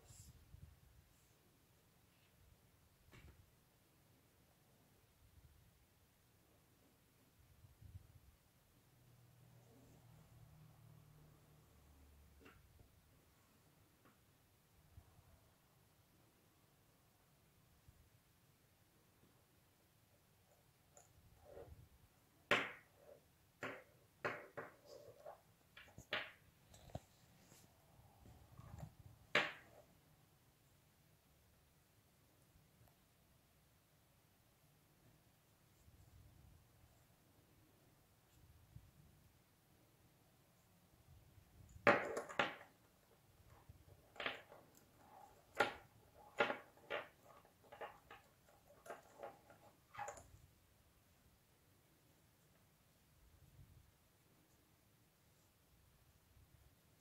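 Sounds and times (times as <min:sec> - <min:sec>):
cord rustling and tapping: 0:20.4 - 0:30.0, 0:41.4 - 0:50.5.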